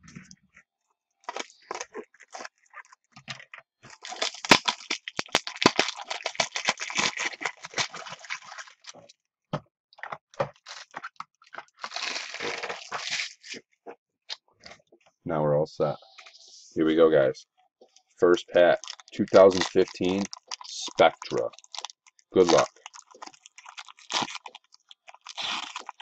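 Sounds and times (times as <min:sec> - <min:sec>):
plastic crinkling and crackling: 0:01.2 - 0:09.2, 0:10.0 - 0:13.6, 0:18.7 - 0:26.0.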